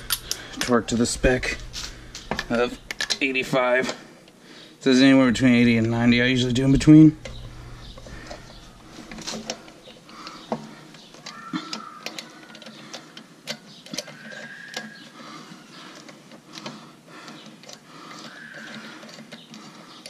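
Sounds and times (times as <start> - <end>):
ratchet wrench clicking: 0.0 - 0.7.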